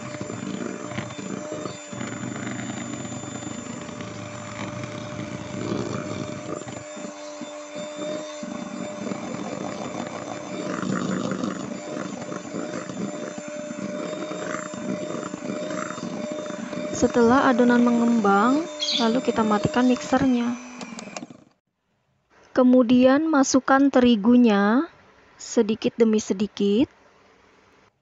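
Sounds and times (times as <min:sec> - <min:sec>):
electric hand mixer running: 0:00.0 - 0:21.6.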